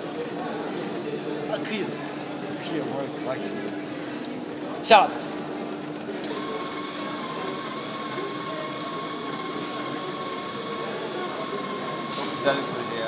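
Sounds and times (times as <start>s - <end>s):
high-pitched electric motor whine: 4.8s - 13.0s.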